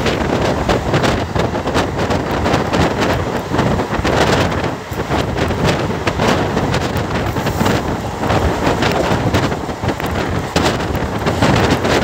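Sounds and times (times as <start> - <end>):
train running on track: 0.0 - 12.0
wind buffeting microphone: 0.0 - 12.0.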